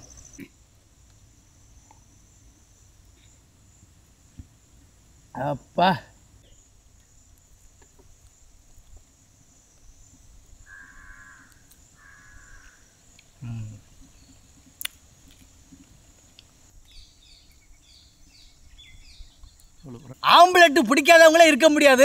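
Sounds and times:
crow cawing: 0:10.7 - 0:12.9
man humming: 0:13.4 - 0:13.8.

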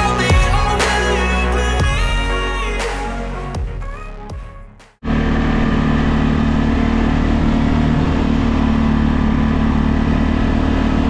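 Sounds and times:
atv engine running: 0:05.0 - 0:11.0.

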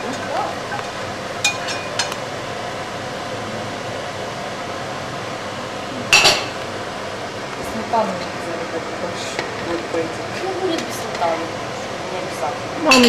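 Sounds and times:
fan-like rushing noise: 0:00.0 - 0:13.0
cookware clatter: 0:06.1 - 0:06.6.

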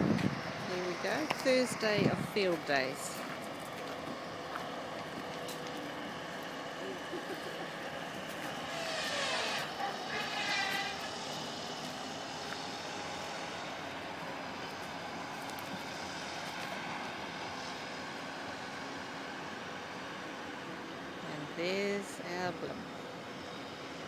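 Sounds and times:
crowd din drone: 0:04.5 - 0:08.4.

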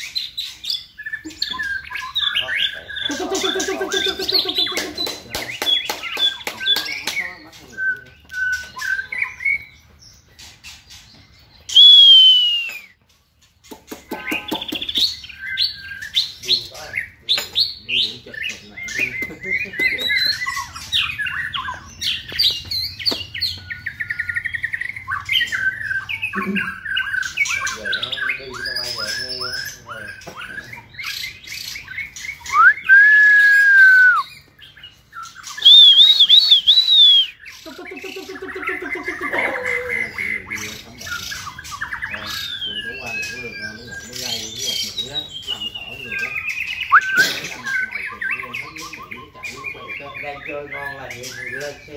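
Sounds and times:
bird singing whistles: 0:05.4 - 0:09.8, 0:11.6 - 0:13.0, 0:17.9 - 0:34.6, 0:35.2 - 0:37.7, 0:40.1 - 0:51.8.

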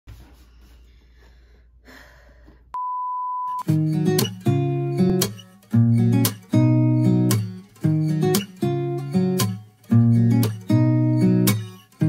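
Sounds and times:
electronic beep: 0:02.8 - 0:03.7
strummed acoustic guitar: 0:03.6 - 0:12.0.

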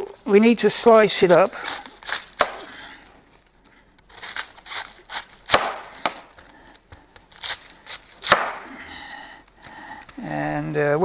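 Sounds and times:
knife slicing cabbage: 0:00.7 - 0:02.9, 0:04.1 - 0:08.8.

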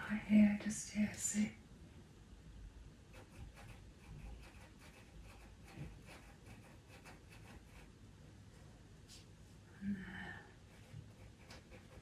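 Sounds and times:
pencil scratching on paper: 0:03.1 - 0:08.0, 0:10.7 - 0:12.0.

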